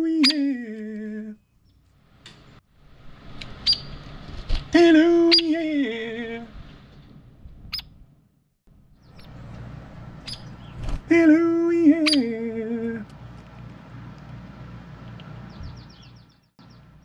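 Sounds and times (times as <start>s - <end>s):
woodpecker calls: 3.6s - 3.9s, 10.2s - 10.8s, 12.0s - 12.3s
man singing two-note call: 4.8s - 6.0s, 11.1s - 13.1s.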